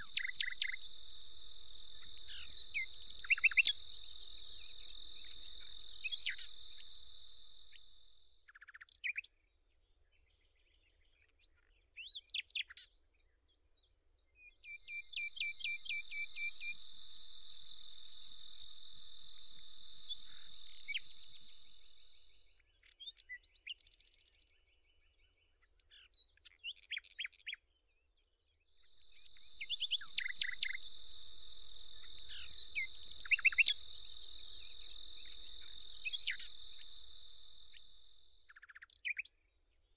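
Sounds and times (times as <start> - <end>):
insect trilling: 0.0 - 8.4, 14.8 - 22.4, 28.8 - 38.4
bird chirps: 0.0 - 9.4, 14.5 - 24.7, 28.8 - 39.5.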